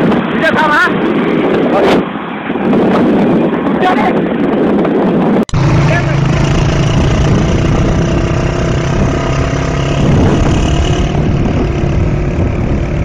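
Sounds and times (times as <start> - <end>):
wind rushing: 0.0 - 13.0
small motorcycle engine running: 5.5 - 13.0.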